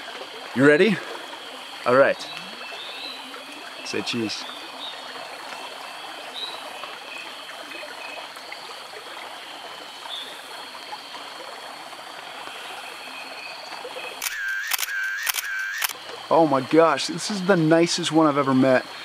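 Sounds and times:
stream running: 0.0 - 19.0
camera shutter clicking: 14.2 - 16.0.

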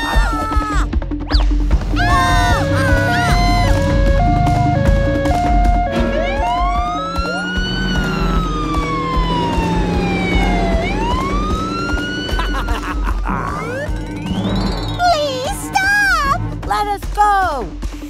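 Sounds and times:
background music with beat: 0.0 - 18.0
cartoon police siren wailing: 2.0 - 14.0.

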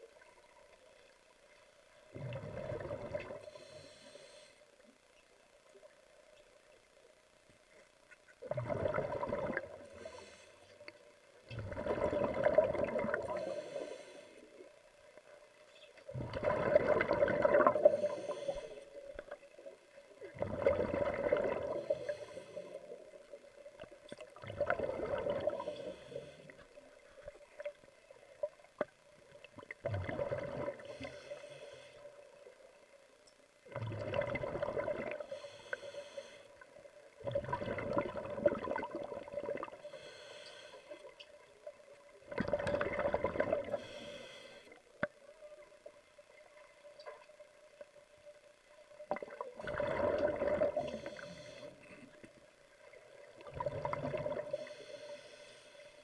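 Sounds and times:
steady hum: 0.0 - 56.0
underwater rushing bubbling water: 2.1 - 3.4, 8.4 - 9.9, 11.5 - 13.5, 16.1 - 18.2, 20.2 - 22.1, 24.2 - 25.8, 29.5 - 30.9, 33.7 - 35.3, 37.2 - 39.8, 42.2 - 43.8, 49.1 - 51.2, 53.2 - 54.6.

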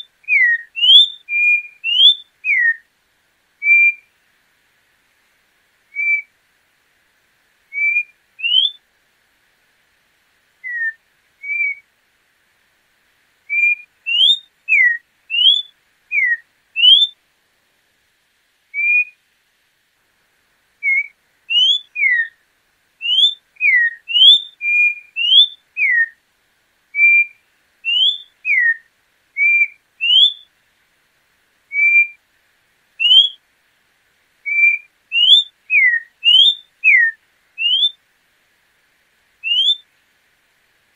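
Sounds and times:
bird whistled song: 0.0 - 2.8, 3.6 - 4.1, 5.9 - 6.3, 7.7 - 8.8, 10.6 - 11.9, 13.5 - 17.2, 18.7 - 19.2, 20.8 - 22.4, 23.0 - 26.2, 27.0 - 30.5, 31.7 - 32.2, 33.0 - 33.4, 34.4 - 38.0, 39.4 - 39.9.

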